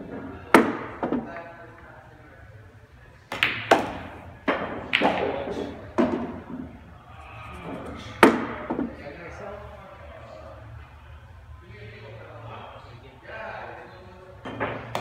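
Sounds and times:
cue tip striking ball: 0:03.3 - 0:06.4
pool balls clacking: 0:03.3 - 0:06.8.

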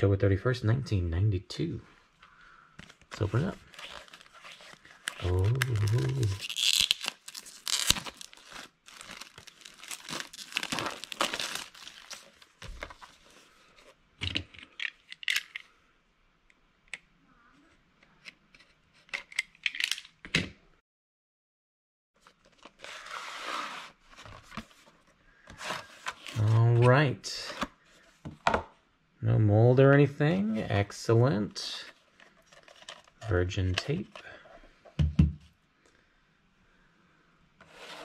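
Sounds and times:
plastic wrap crinkling and tearing: 0:02.9 - 0:13.3.

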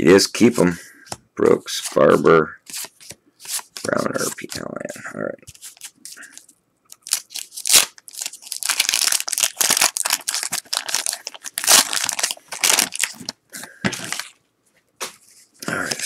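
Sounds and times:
wax paper wrapper crinkling and tearing: 0:05.5 - 0:13.4.

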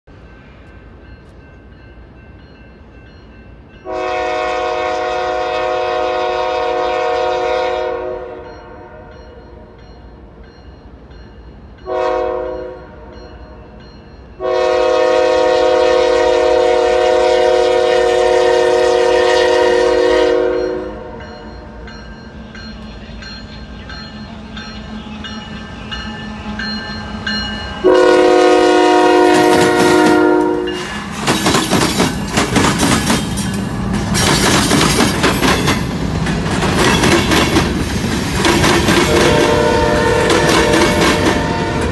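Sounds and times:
locomotive air horn blasts: 0:03.8 - 0:09.1, 0:11.9 - 0:13.1, 0:14.4 - 0:21.2, 0:27.8 - 0:31.1, 0:39.0 - 0:41.9
locomotive engine and wheels rushing: 0:21.0 - 0:27.9, 0:29.2 - 0:41.9.

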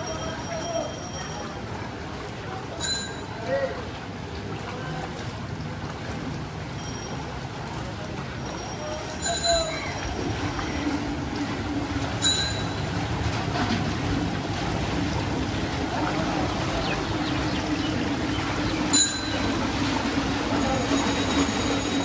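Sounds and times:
heavy rain pouring: 0:00.0 - 0:22.0
traffic engine hum: 0:09.8 - 0:22.0.

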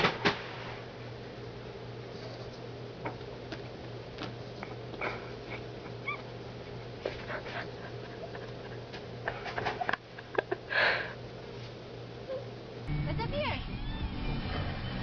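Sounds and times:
steady low hum: 0:00.0 - 0:15.0
dog whimpering: 0:05.0 - 0:06.3
dog huffing: 0:07.0 - 0:08.5.

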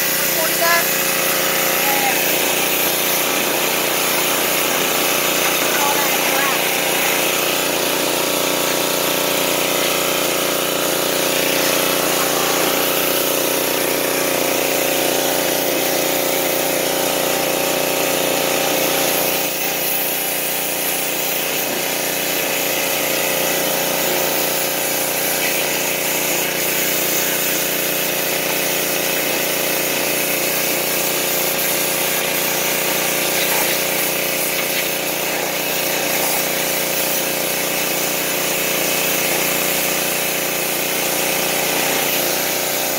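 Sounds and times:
pressure washer engine running: 0:00.0 - 0:42.9
water jet spraying against metal: 0:00.0 - 0:42.9.

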